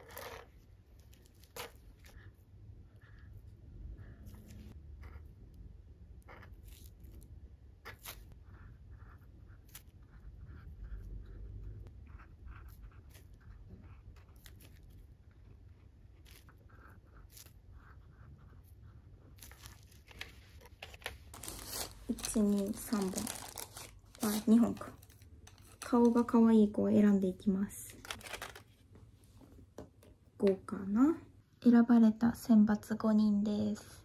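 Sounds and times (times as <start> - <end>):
pen scratching on macaron shells: 6.1 - 26.3
plastic wrap crinkling: 21.1 - 26.4, 27.9 - 28.8.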